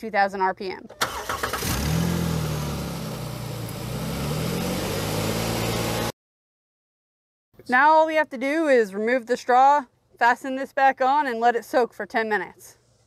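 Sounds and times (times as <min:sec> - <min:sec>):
car engine revving at fast idle: 0:01.0 - 0:06.1.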